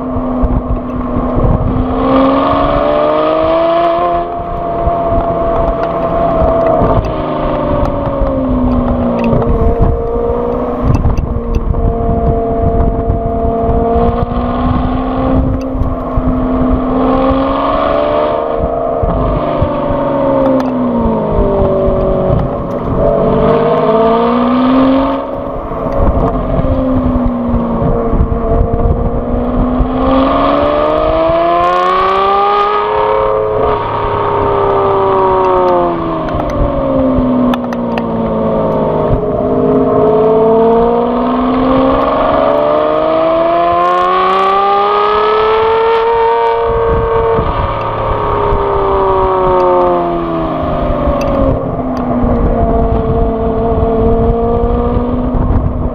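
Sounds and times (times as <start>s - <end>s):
car exhaust revving: 0.0s - 55.9s
wind buffeting microphone: 0.0s - 55.9s.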